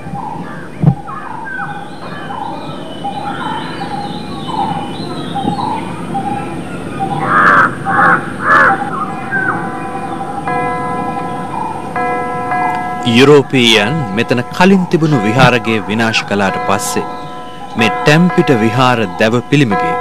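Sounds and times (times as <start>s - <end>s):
small birds chirping: 0.0s - 19.8s
crow cawing: 7.0s - 10.2s, 15.6s - 17.9s
bell-like tones: 9.6s - 20.0s.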